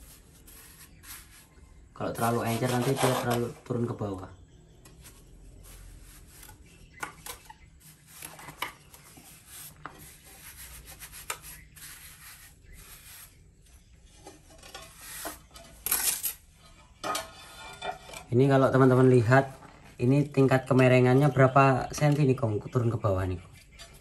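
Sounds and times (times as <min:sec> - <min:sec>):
trowel scraping mortar: 0:00.0 - 0:03.7, 0:05.0 - 0:16.5.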